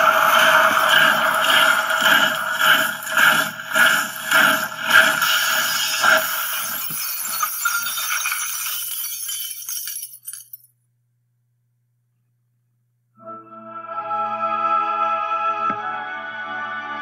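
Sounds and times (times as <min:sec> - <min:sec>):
glass shattering: 0:05.3 - 0:10.7
glass shards tinkling: 0:06.6 - 0:10.7.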